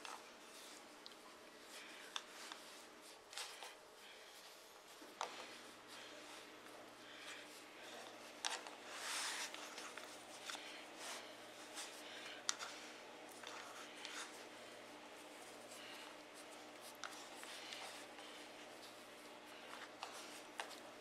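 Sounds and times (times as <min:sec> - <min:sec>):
hands kneading dough: 0:00.0 - 0:21.0
steady low hum: 0:00.0 - 0:21.0.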